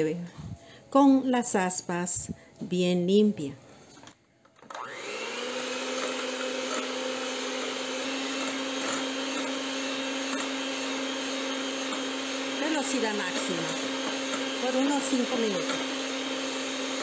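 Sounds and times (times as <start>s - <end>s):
electric mixer whining: 4.6s - 17.0s.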